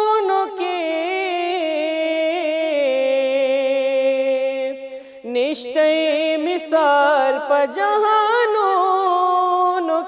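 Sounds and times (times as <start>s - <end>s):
person singing unaccompanied: 0.0s - 10.0s.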